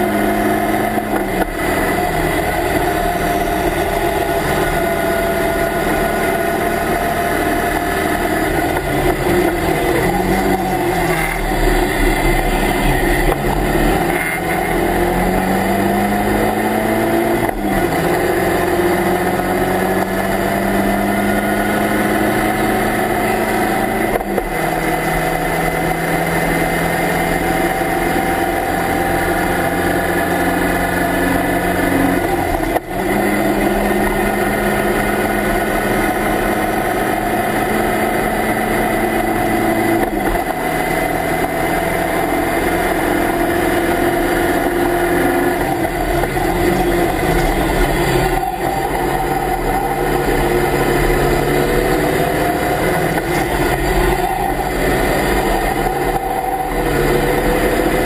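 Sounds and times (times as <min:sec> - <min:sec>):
race car engine running hard: 0:00.0 - 0:58.0.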